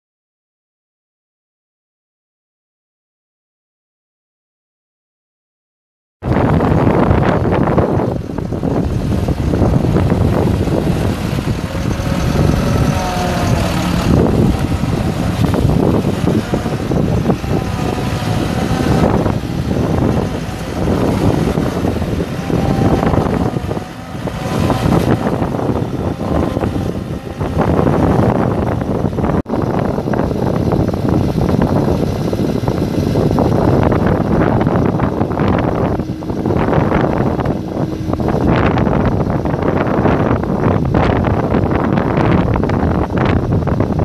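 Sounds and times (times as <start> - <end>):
diesel engine under load: 6.3 - 44.0.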